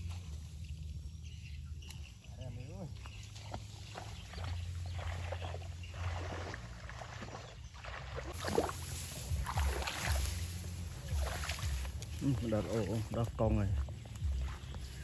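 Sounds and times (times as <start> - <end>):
steady low rumble: 8.0 - 15.0
grass swishing against legs: 8.2 - 15.0.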